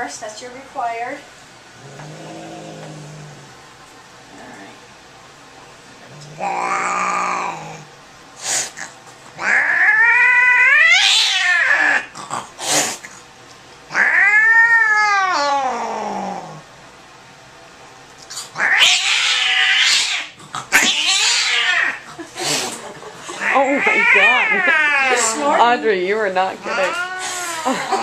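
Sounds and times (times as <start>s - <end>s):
cat yowling: 6.4s - 7.8s, 9.4s - 12.1s, 13.9s - 16.5s, 18.6s - 22.1s, 23.4s - 25.4s, 26.6s - 28.0s.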